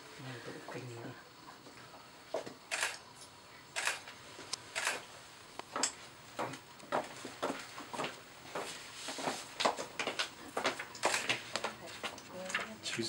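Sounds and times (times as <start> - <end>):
camera shutters clicking: 2.7 - 3.0, 3.8 - 4.1, 4.8 - 5.0, 11.0 - 11.4.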